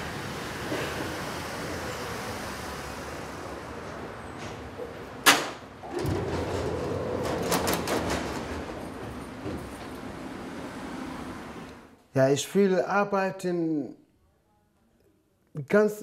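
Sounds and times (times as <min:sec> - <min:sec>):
train doors opening: 0:00.0 - 0:12.0.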